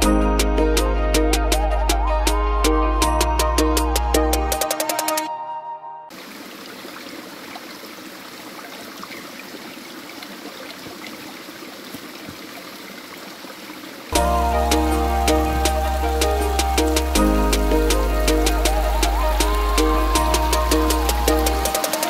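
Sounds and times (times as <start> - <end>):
loud background music: 0.0 - 5.4, 14.2 - 22.0
stream flowing over rocks: 6.1 - 22.0.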